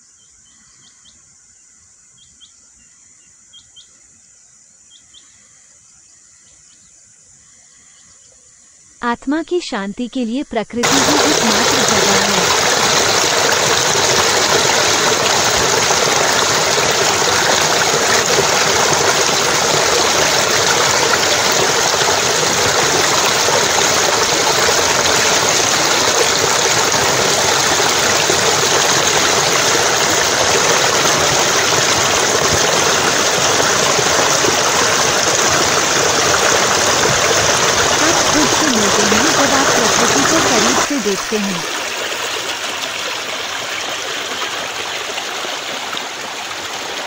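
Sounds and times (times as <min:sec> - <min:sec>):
stream flowing over rocks: 0:10.8 - 0:47.0.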